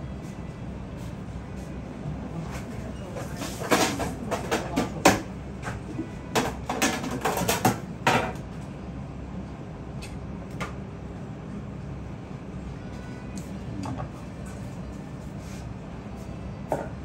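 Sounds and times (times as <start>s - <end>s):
kitchen utensils clattering: 3.0s - 5.2s.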